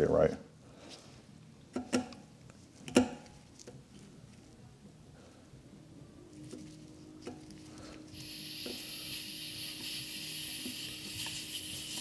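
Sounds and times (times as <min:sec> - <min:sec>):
air hissing from tire valve: 0:08.1 - 0:12.0.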